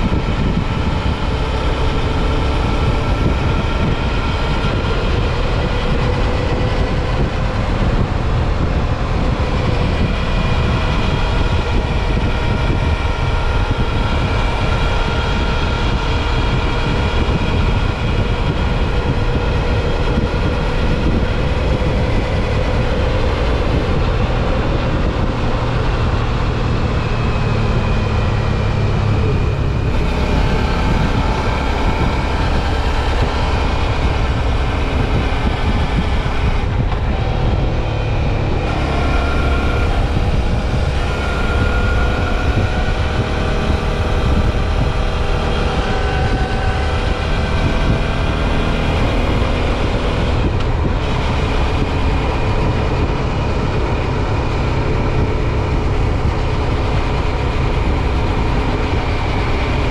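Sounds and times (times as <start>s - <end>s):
motorcycle engine cruising: 0.0s - 59.9s
wind rushing on microphone: 0.0s - 59.9s.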